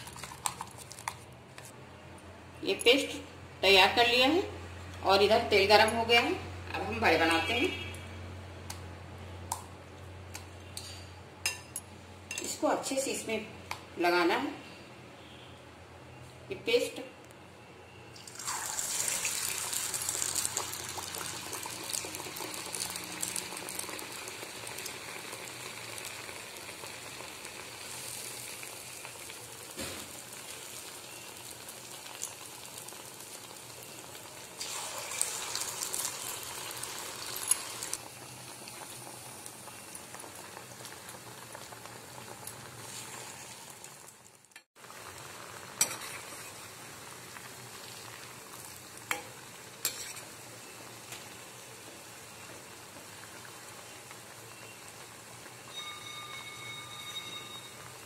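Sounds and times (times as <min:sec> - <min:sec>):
battered slices sizzling in hot oil: 0:18.2 - 0:58.0.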